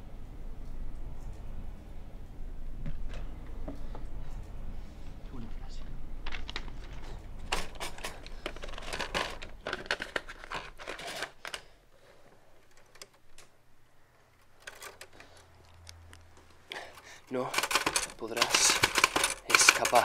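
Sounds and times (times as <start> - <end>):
faint low hum: 0.0 - 18.4
paper rustling: 6.2 - 11.8, 14.4 - 20.0
typewriter carriage clicking: 6.3 - 11.6, 14.5 - 15.4, 17.4 - 20.0.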